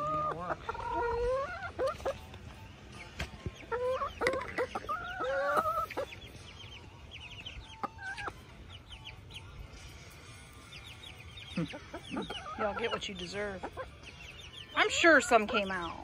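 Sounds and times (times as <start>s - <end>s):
hens squawking: 0.0s - 2.3s, 3.6s - 6.4s, 7.3s - 9.3s, 11.2s - 16.0s
hens clucking: 0.0s - 16.0s.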